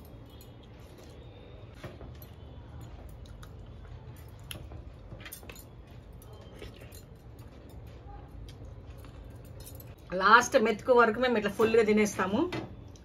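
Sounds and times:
bangles clicking on metal: 9.2 - 10.0.

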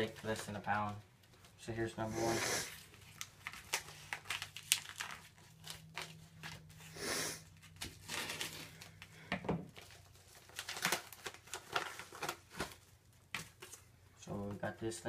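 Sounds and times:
paper crinkling and rustling: 2.7 - 6.9, 7.6 - 9.1, 9.7 - 13.9.

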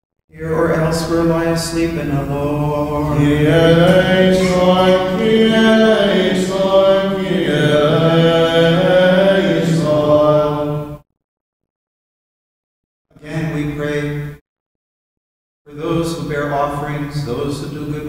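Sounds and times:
man chanting: 0.3 - 11.0, 13.2 - 14.4, 15.7 - 18.0.

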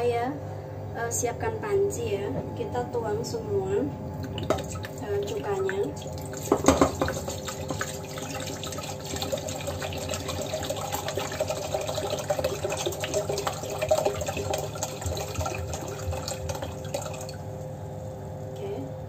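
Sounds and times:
liquid pouring into metal pot: 4.2 - 17.5.

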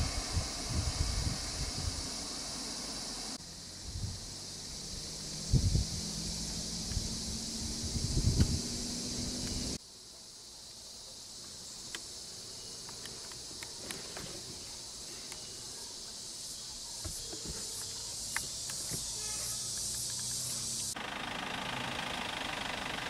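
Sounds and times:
insects buzzing: 0.0 - 23.0
faint clicks: 12.8 - 14.0.

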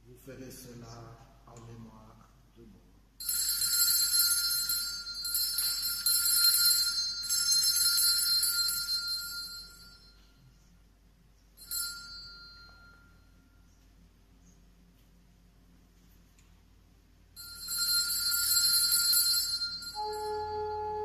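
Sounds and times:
altar bells ringing: 3.2 - 10.5, 11.6 - 13.7, 17.4 - 21.0.

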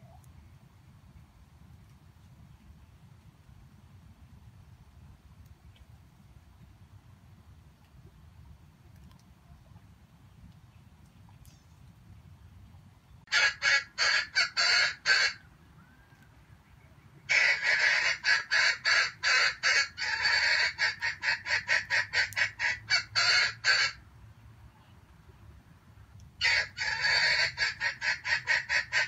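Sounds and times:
junglefowl cackling: 13.3 - 16.3, 17.2 - 24.0, 26.4 - 29.0.

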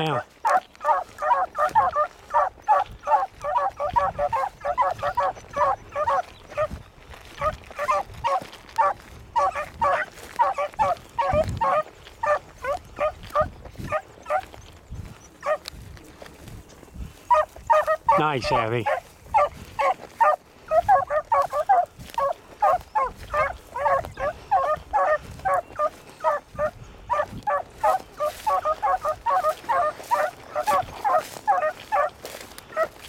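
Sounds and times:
hounds baying: 0.0 - 33.0.

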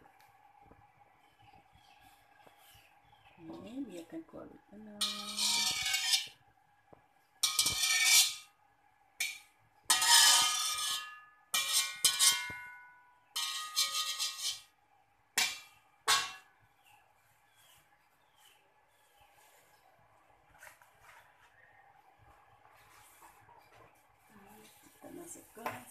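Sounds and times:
metal spatula scraping wok: 5.0 - 6.4, 7.4 - 8.6, 9.2 - 14.8, 15.4 - 16.5
wok metal ringing: 5.0 - 6.4, 7.4 - 8.5, 9.2 - 14.7, 15.4 - 16.5.

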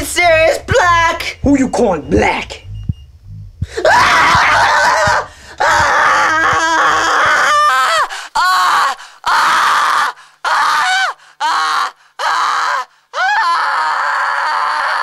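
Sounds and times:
boy screaming: 3.8 - 15.0.

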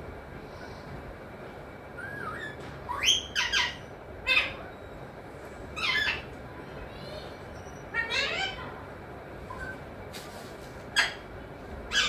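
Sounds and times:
parakeet harsh squawks: 2.1 - 4.6, 7.9 - 8.6, 11.0 - 11.2.

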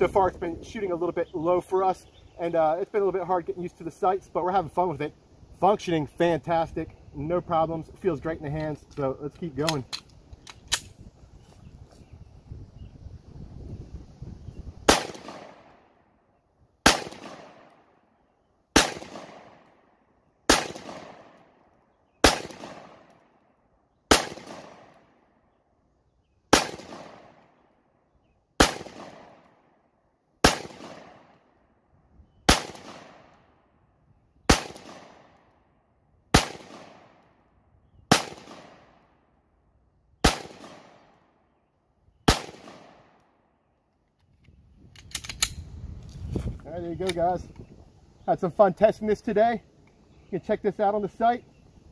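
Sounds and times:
pistol shots with echo: 14.9 - 15.9, 16.8 - 18.0, 18.7 - 19.8, 20.5 - 21.6, 22.2 - 23.2, 24.1 - 25.2, 26.5 - 27.6, 28.6 - 29.7, 30.4 - 31.4, 32.5 - 33.4, 34.5 - 35.4, 36.3 - 37.3, 38.1 - 39.1, 40.2 - 41.3, 42.3 - 43.2.

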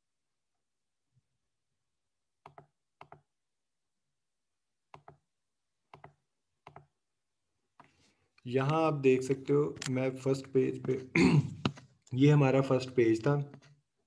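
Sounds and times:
computer mouse clicks: 2.4 - 3.3, 4.9 - 5.2, 5.9 - 6.9.

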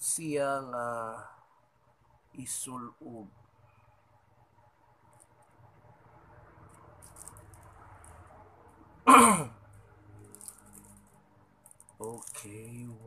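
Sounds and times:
plastic packaging crinkling: 11.9 - 12.8.

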